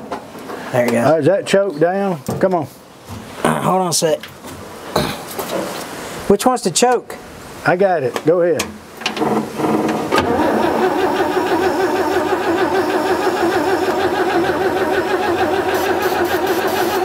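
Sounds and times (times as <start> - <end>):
truck engine cranking: 9.0 - 17.0.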